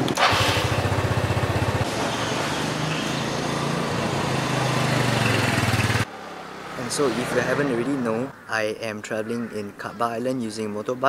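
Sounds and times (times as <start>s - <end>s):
motor scooter engine running: 0.0s - 1.8s, 3.1s - 6.1s.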